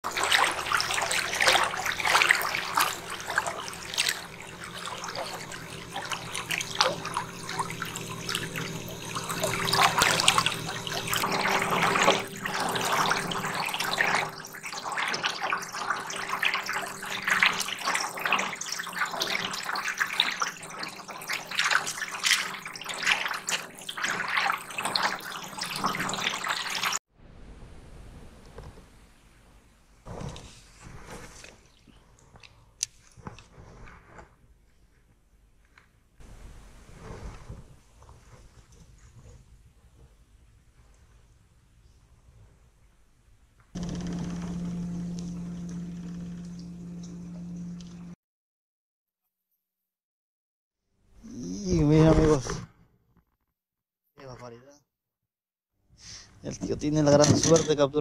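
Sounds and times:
water lapping against boat hull: 0:00.0 - 0:27.0, 0:43.8 - 0:48.2
faint steady hum: 0:00.2 - 0:18.0, 0:43.8 - 0:48.2.

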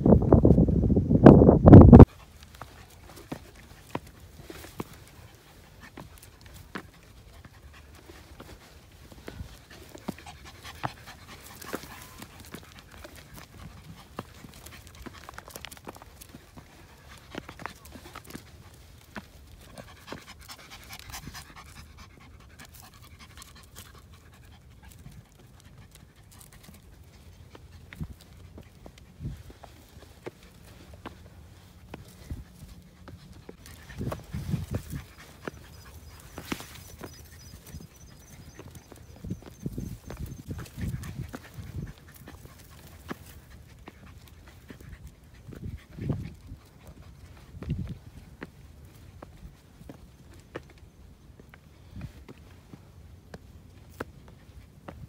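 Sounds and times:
dog panting: 0:02.0 - 0:50.7
footsteps on stones: 0:02.1 - 0:21.8, 0:24.9 - 0:55.0
footsteps crunching on rocks: 0:27.9 - 0:44.8.

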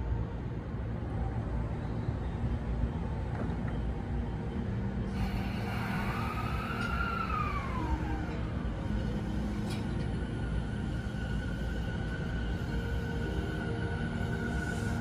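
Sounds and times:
low hum: 0:00.0 - 0:15.0
electric train motor whine: 0:04.3 - 0:15.0.

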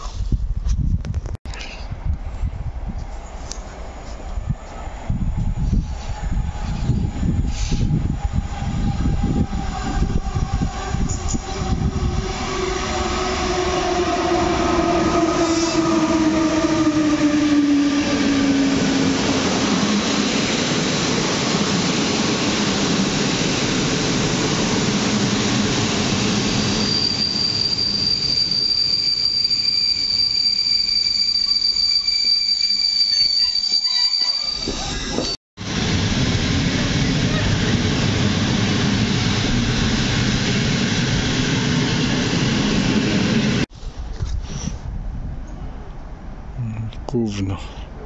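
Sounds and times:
train carriages rolling rumble: 0:01.7 - 0:44.1
electric locomotive whine: 0:02.6 - 0:43.7
wheel and brake squeal: 0:26.5 - 0:35.4.

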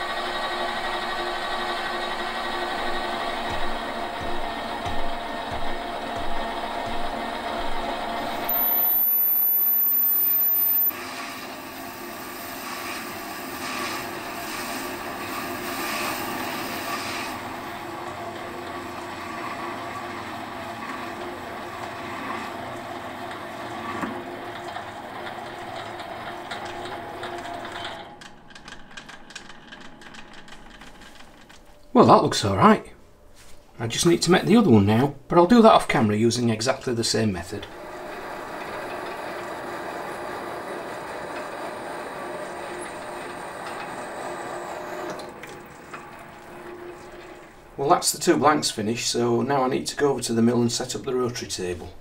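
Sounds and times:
metal lathe running: 0:00.0 - 0:10.9, 0:37.7 - 0:47.7
regular knocking: 0:02.6 - 0:08.5.

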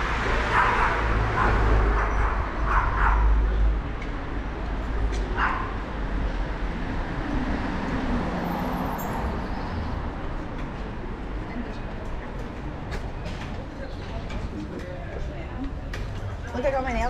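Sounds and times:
city street hum and rumble: 0:00.0 - 0:17.0
small dog barking: 0:05.4 - 0:05.8.

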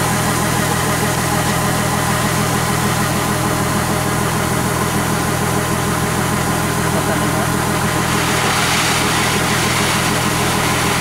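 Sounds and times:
combine harvester engine drone: 0:00.0 - 0:11.0
grain pouring into a sack: 0:07.9 - 0:11.0.

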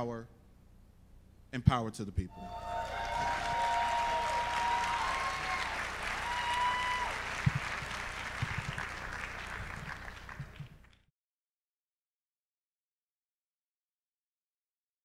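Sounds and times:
large audience applauding: 0:02.4 - 0:11.0.

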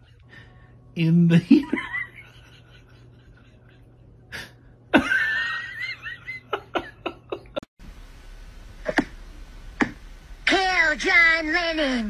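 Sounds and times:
person laughing: 0:01.5 - 0:07.6.

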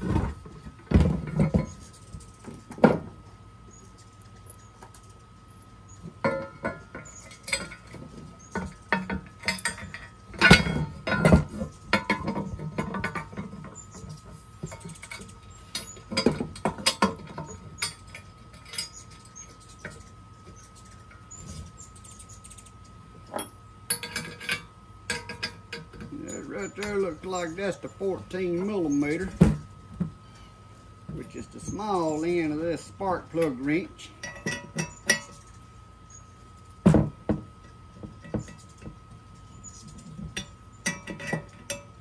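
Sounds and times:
metal hardware clinking: 0:06.2 - 0:20.0, 0:23.2 - 0:29.7, 0:31.1 - 0:35.5, 0:40.2 - 0:42.0.

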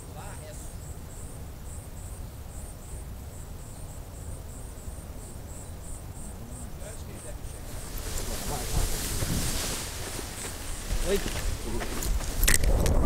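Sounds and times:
insect chirping: 0:00.0 - 0:13.0
wind rumble on microphone: 0:07.4 - 0:13.0.

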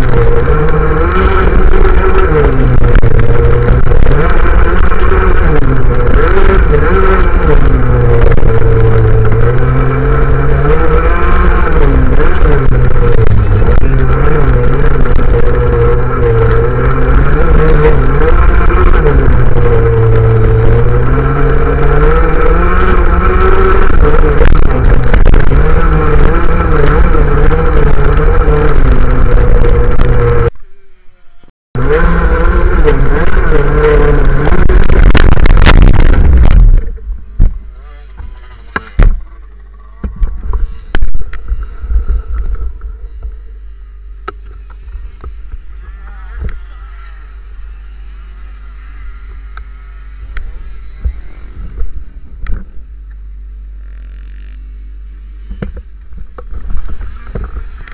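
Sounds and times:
two-stroke scooter engine revving: 0:00.0 - 0:30.6, 0:31.8 - 0:43.6
quiet low rumble: 0:00.0 - 0:57.9.

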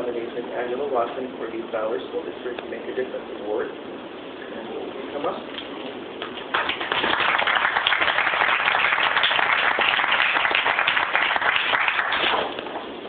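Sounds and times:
audience applauding: 0:06.2 - 0:12.7.

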